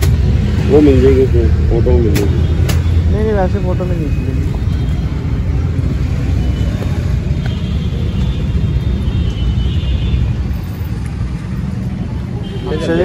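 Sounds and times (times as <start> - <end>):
market background rumble: 0.0 - 8.8.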